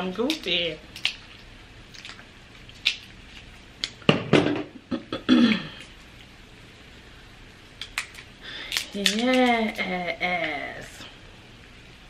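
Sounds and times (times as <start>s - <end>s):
crab cracker clicking and cracking: 0.2s - 3.2s, 3.8s - 4.0s, 7.8s - 9.9s
throaty cough-like vocal sound: 5.0s - 5.8s.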